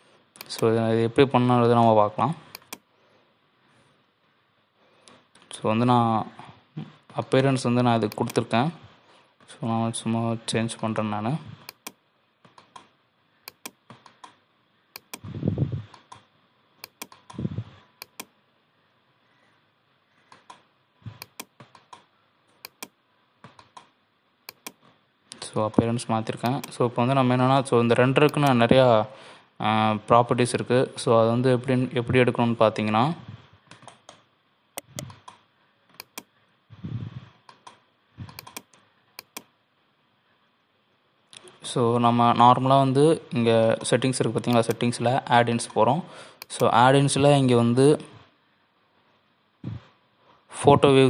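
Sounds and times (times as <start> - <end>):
mouse and keyboard clicking: 2.5 - 2.8, 8.1 - 8.5, 11.6 - 12.9, 13.5 - 14.4, 15.0 - 15.3, 15.9 - 17.4, 18.0 - 18.3, 20.3 - 23.9, 24.5 - 24.9, 26.4 - 26.8, 34.8 - 36.3, 37.5 - 39.5, 44.5 - 44.9.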